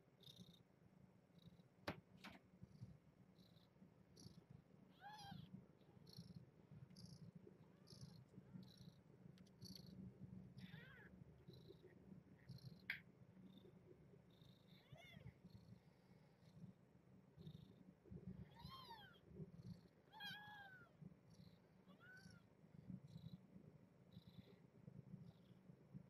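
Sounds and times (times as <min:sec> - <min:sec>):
kittens mewing: 0:10.6 - 0:11.1.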